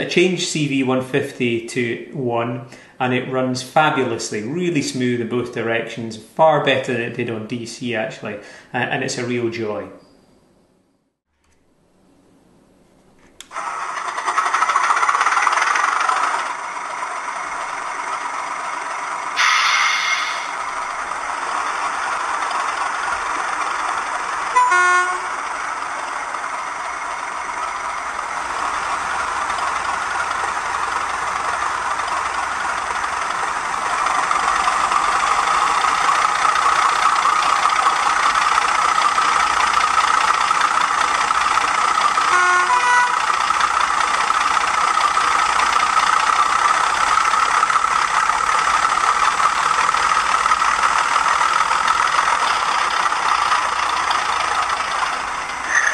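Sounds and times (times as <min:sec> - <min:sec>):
diesel engine sound from small speaker: 0:00.0 - 0:10.1, 0:13.4 - 0:55.9
short horn toot: 0:24.6 - 0:25.3, 0:42.3 - 0:43.2.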